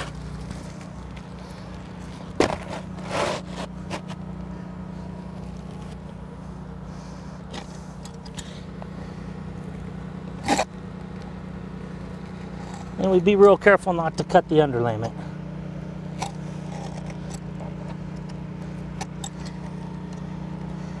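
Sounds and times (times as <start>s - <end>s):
roofing shingle scraping: 0.0s - 4.2s
steady low hum: 0.0s - 21.0s.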